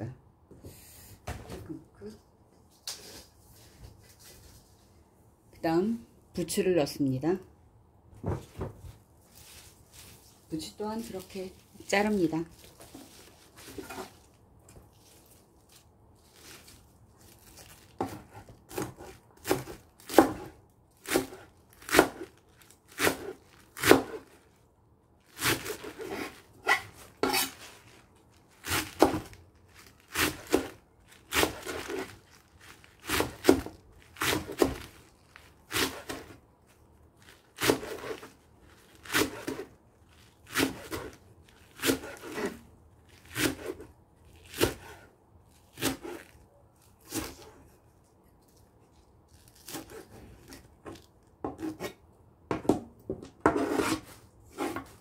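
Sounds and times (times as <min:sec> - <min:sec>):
knife chopping on cutting board: 0:18.0 - 0:20.5.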